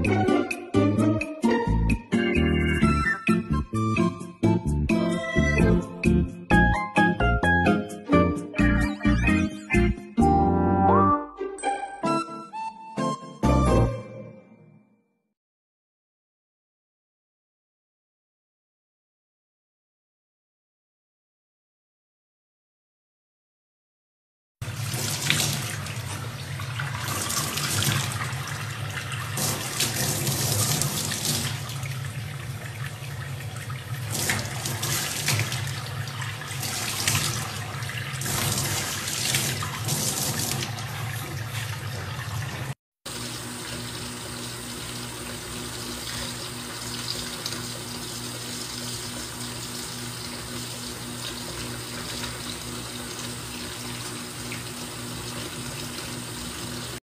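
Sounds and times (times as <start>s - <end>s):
water pouring into a dish: 24.6s - 42.8s
tap water running into a sink: 24.6s - 57.0s.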